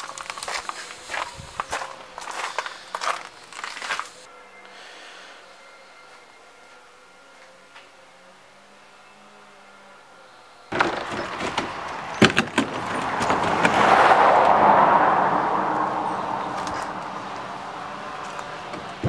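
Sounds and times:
plastic kayak knocking against car: 10.7s - 13.9s
rushing noise: 10.7s - 19.0s.

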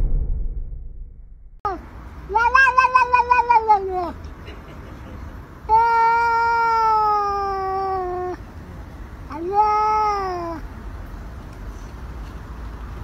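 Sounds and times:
cat meowing: 2.3s - 4.2s, 5.7s - 8.4s, 9.3s - 10.6s.

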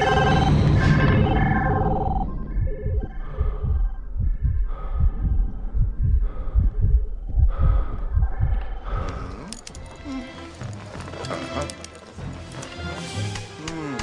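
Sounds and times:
heartbeat thumps: 0.0s - 9.4s.

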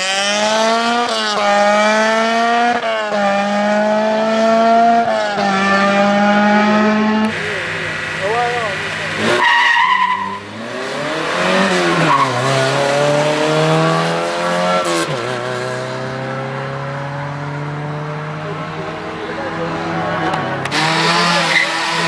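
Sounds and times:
rally car engine accelerating: 0.0s - 22.0s
tyre squeal: 9.3s - 10.5s, 11.8s - 12.6s, 20.8s - 22.0s.

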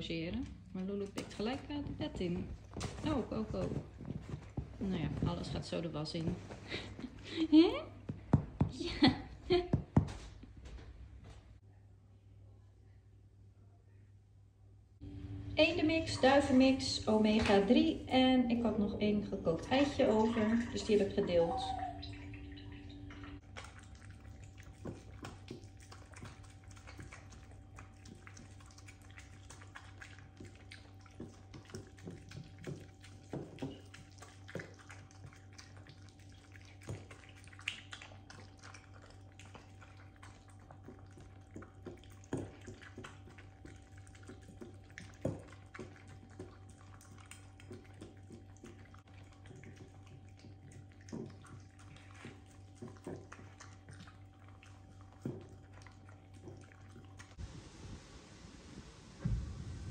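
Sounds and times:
dogs licking and chewing: 0.0s - 10.8s, 15.3s - 59.8s
steady low hum: 10.3s - 59.9s.

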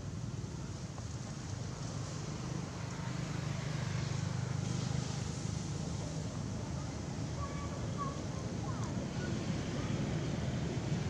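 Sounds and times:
constant hiss: 0.0s - 11.0s.

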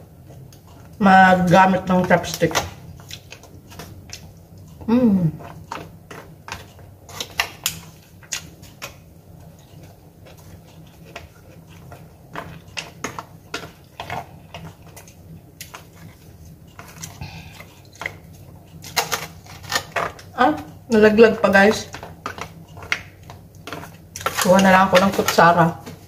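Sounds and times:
steady low hum: 0.0s - 26.0s
chopsticks clicking on foil tray: 23.7s - 25.7s.

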